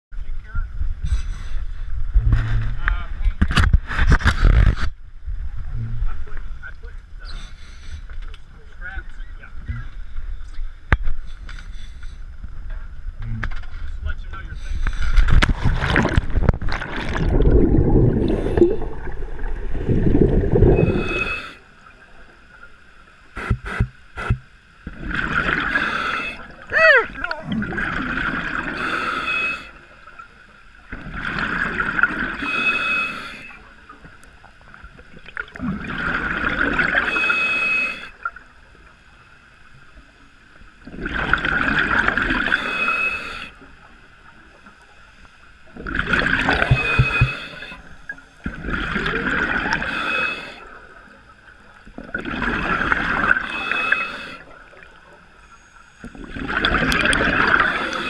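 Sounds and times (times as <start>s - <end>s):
diver breathing through regulator: 1.0s - 1.8s, 14.5s - 15.4s, 17.1s - 21.8s, 25.6s - 26.6s, 28.7s - 29.8s, 32.3s - 33.6s, 36.9s - 38.2s, 42.4s - 43.6s, 46.5s - 48.1s, 49.7s - 50.8s, 53.2s - 54.5s, 57.4s - 58.0s.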